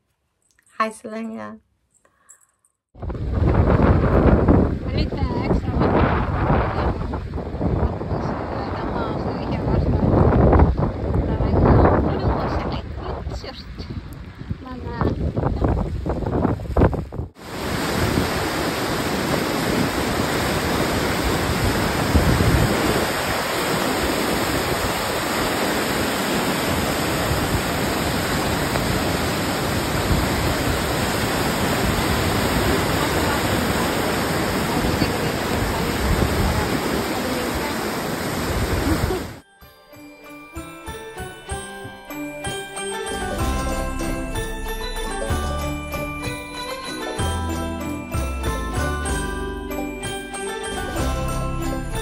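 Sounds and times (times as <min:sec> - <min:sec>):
storm noise: 0:03.0 - 0:39.4, 0:43.4 - 0:47.5
river rapids rushing: 0:17.4 - 0:39.4
christmas tune with sleigh bells: 0:39.4 - 0:52.0.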